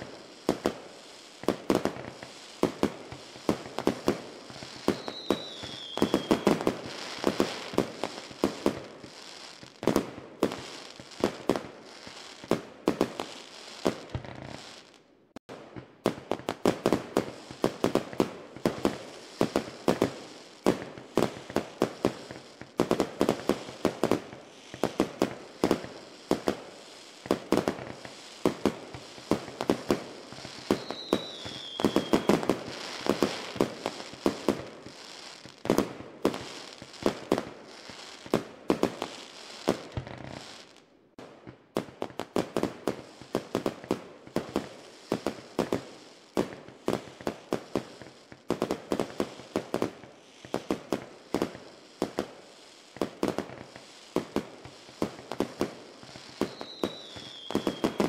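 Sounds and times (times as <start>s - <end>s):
falling firework whistle: 0.0s - 12.4s, 27.2s - 40.8s, 53.3s - 58.0s
fireworks bangs and crackles: 0.0s - 58.0s.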